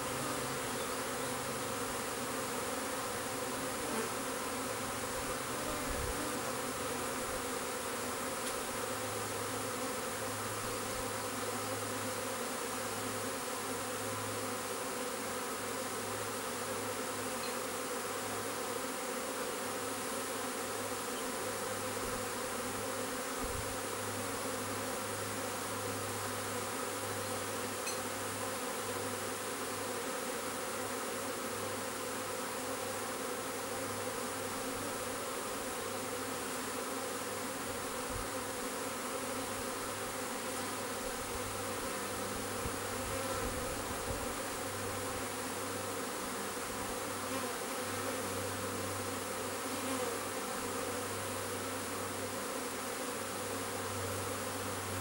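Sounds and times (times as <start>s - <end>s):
honeybee swarm buzzing: 0.0s - 55.0s.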